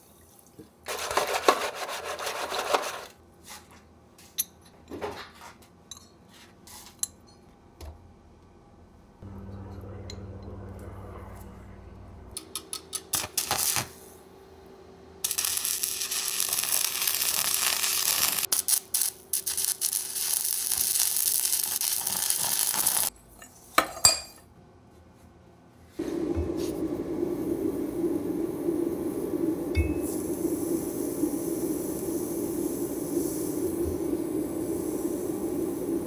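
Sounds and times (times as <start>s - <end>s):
arc welding crackling hiss: 13.0s - 14.2s, 15.2s - 23.1s, 26.0s - 36.0s.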